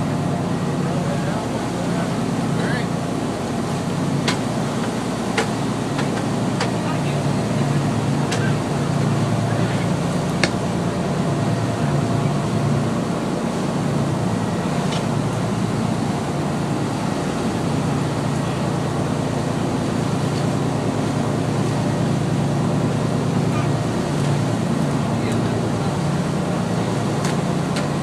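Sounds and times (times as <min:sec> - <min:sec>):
boat engine drone: 0:00.0 - 0:28.0
wind and water rushing: 0:00.0 - 0:28.0.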